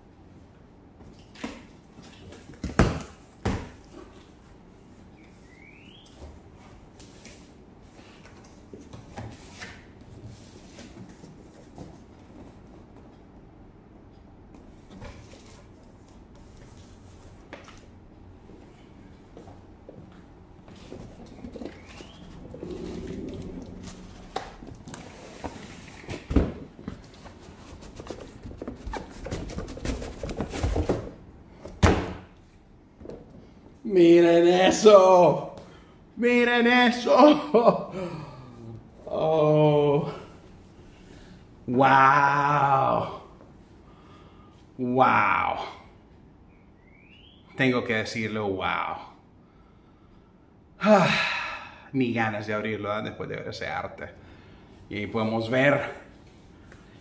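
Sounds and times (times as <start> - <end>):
short rising squeak: 21.7 - 25.3.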